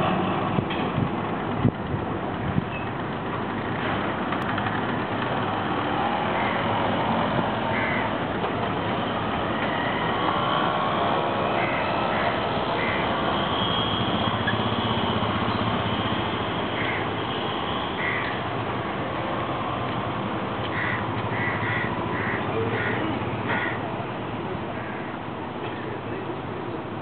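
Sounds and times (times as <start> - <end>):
ferry engine idling: 0.0 - 27.0
scooter and motorcycle engines: 0.0 - 27.0
crows cawing: 6.3 - 6.7, 7.7 - 8.2, 9.6 - 10.2, 11.5 - 13.1, 16.7 - 17.1, 18.0 - 18.4, 20.7 - 23.9, 24.8 - 25.2.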